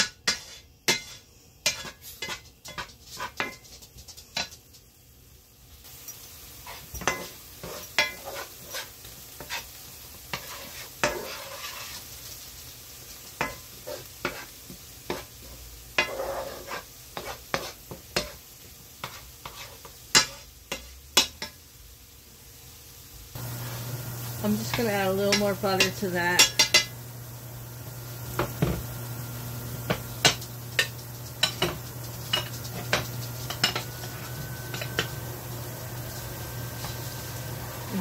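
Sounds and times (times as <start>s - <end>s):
vegetables sizzling in butter: 0.0s - 38.0s
wooden spoon scraping pan: 0.2s - 4.6s, 6.6s - 12.2s, 13.4s - 18.4s, 19.0s - 20.9s, 29.8s - 38.0s.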